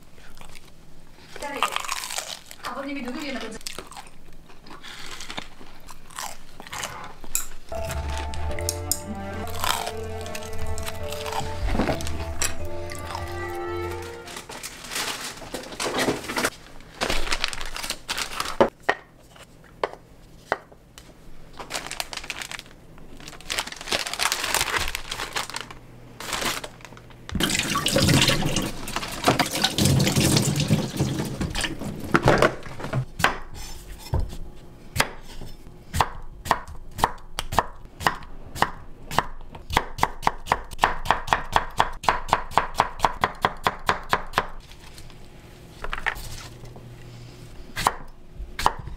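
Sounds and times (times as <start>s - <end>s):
tap water running into sink: 27.4s - 31.8s.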